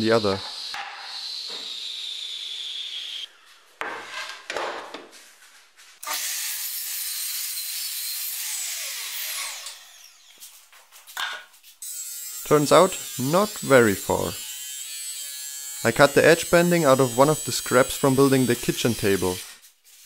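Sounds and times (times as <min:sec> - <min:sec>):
miter saw cutting wood: 0:00.0 - 0:03.3, 0:06.0 - 0:10.4, 0:11.8 - 0:19.6
saw blade winding down: 0:00.0 - 0:03.3, 0:08.2 - 0:10.3, 0:12.5 - 0:14.6, 0:15.2 - 0:19.6.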